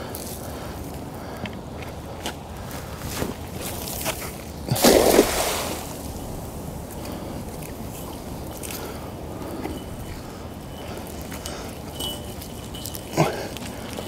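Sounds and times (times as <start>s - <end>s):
cast net splashing into water: 4.7s - 6.2s
steady hiss of sinking net: 4.7s - 9.2s.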